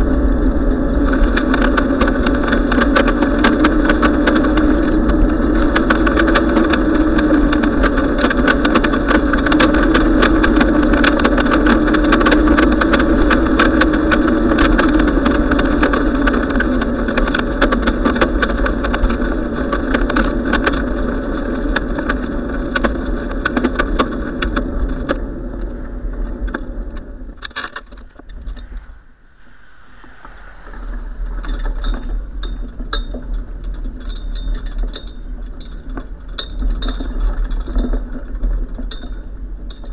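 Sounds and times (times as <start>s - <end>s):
bicycle rolling hum: 0.0s - 39.9s
small rattling clicks: 26.4s - 28.7s
wind rushing on microphone: 28.0s - 39.9s.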